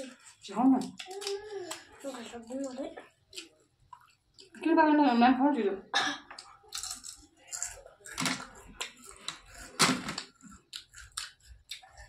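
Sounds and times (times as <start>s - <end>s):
crunchy snack being chewed: 6.4s - 12.0s.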